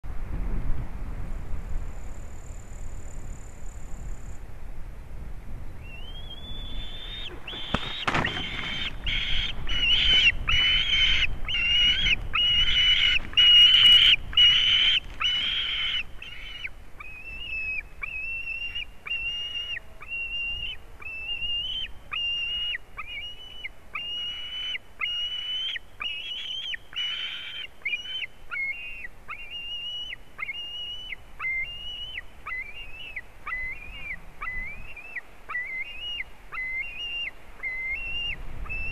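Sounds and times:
eagle shrill calls: 5.8s - 38.9s
sharp thump: 7.5s - 8.8s.

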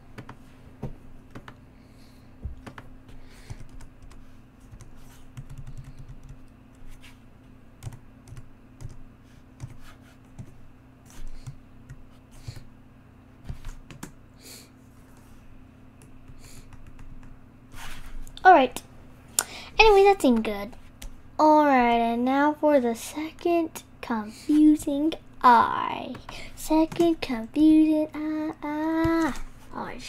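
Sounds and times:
faint low hum: 0.0s - 30.0s
computer keyboard keystrokes: 1.3s - 1.6s, 2.6s - 2.9s, 3.5s - 6.8s, 7.8s - 9.0s, 13.6s - 14.2s, 16.0s - 17.3s.

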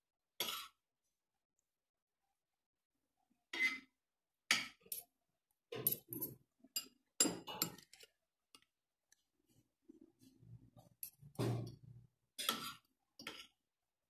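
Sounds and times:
cutlery clinking on ceramic plate: 5.7s - 8.1s.

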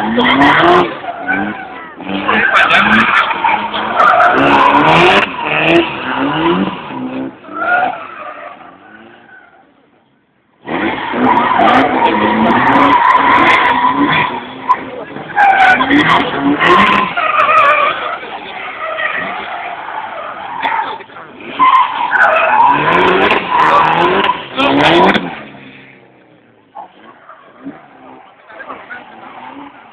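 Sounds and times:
car engine revving: 0.0s - 9.8s, 10.6s - 29.9s
tyres squealing: 10.8s - 25.7s.

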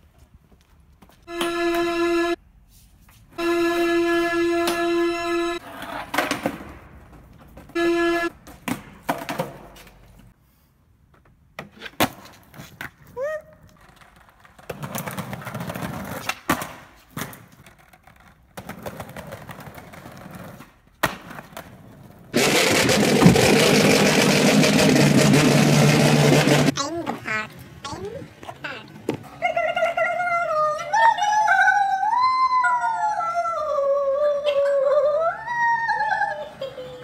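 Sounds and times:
skateboard wheels rolling on concrete: 5.4s - 10.4s, 11.0s - 30.7s
skateboard deck clacking: 13.8s - 27.2s.

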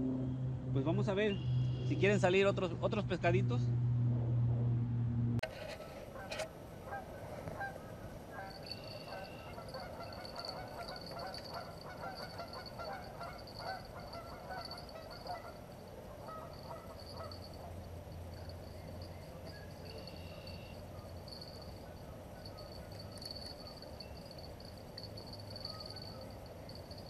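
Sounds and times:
geese honking: 5.7s - 17.8s.

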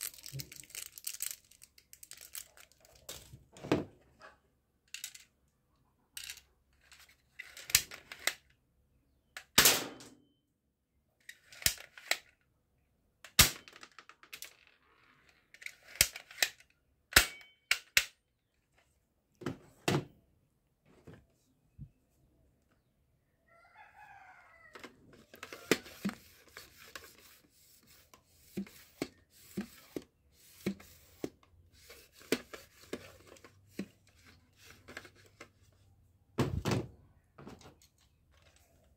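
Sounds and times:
plastic toy guns clicking: 11.3s - 12.3s, 15.6s - 18.2s.

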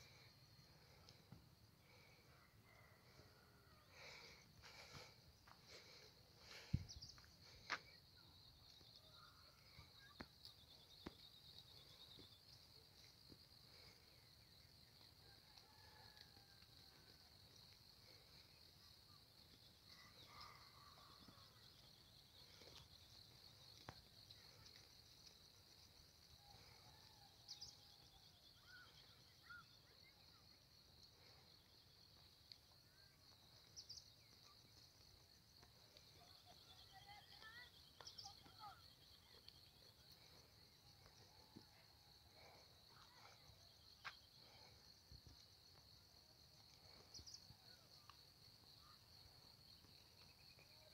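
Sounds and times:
insects chirping: 0.0s - 50.9s
faint bird chirps: 1.9s - 13.4s.

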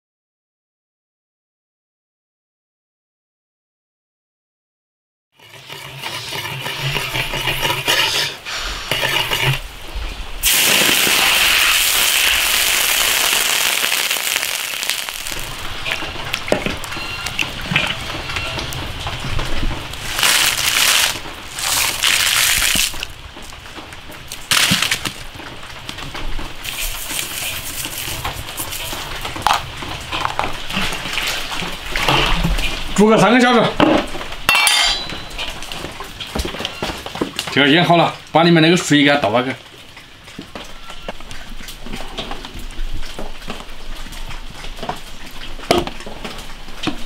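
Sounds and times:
food sizzling in hot oil: 10.4s - 16.0s, 20.0s - 23.1s, 26.6s - 29.6s.

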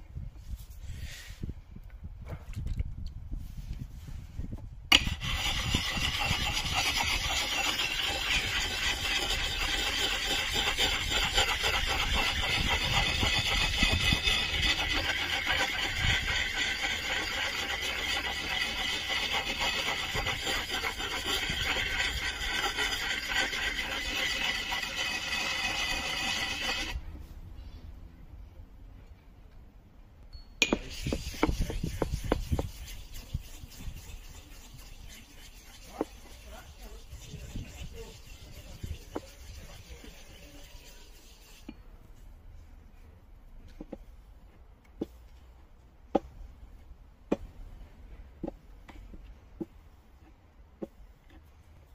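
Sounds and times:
stone grinding on axe steel: 4.9s - 27.0s, 30.6s - 41.8s.

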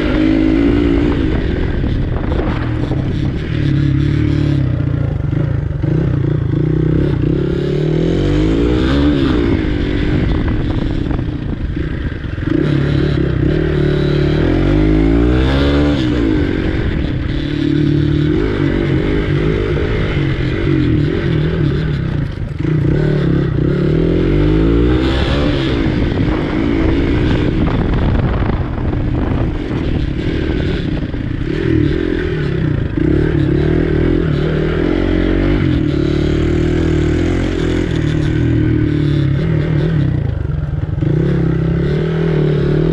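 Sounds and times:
dirt bike engine revving: 0.0s - 42.9s
clatter: 20.4s - 23.4s.

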